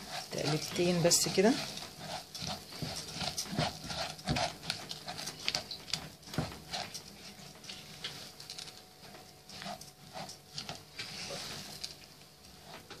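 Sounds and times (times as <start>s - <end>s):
spatula scraping frying pan: 0.0s - 8.2s
rice grains rustling: 0.0s - 8.6s.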